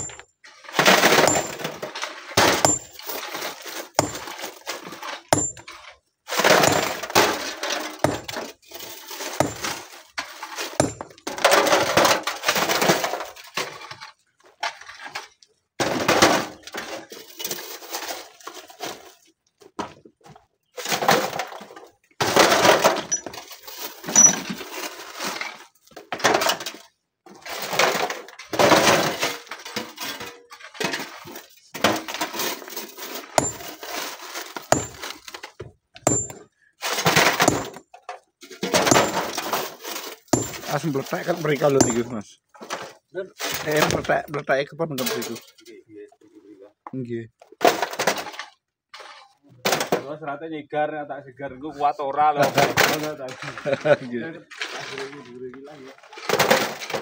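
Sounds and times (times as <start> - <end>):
stones clattering: 0.0 - 5.8, 6.4 - 8.3, 9.0 - 9.8, 10.7 - 11.3, 32.0 - 35.4, 36.0 - 36.4, 37.2 - 37.8, 38.8 - 42.2.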